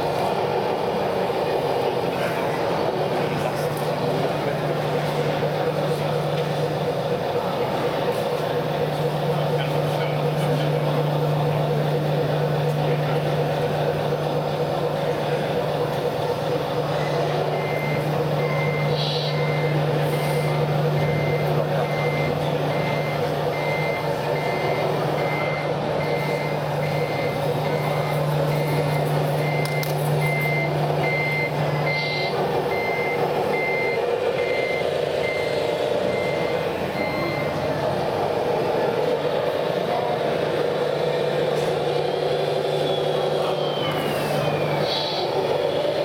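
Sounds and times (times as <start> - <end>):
low diesel engine hum: 0.0 - 46.0
reversing beeper: 16.2 - 46.0.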